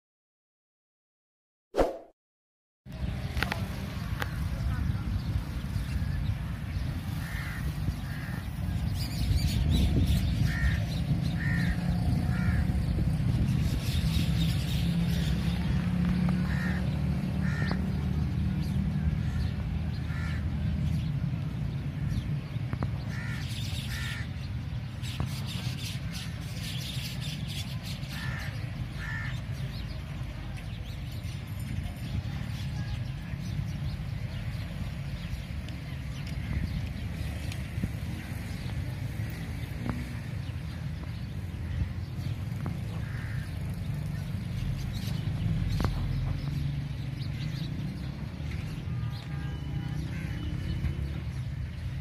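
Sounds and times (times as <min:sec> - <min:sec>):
crows cawing: 0:07.2 - 0:08.5, 0:10.4 - 0:12.7, 0:16.4 - 0:17.8, 0:20.1 - 0:20.5, 0:23.1 - 0:24.3, 0:28.1 - 0:29.4, 0:43.0 - 0:43.6.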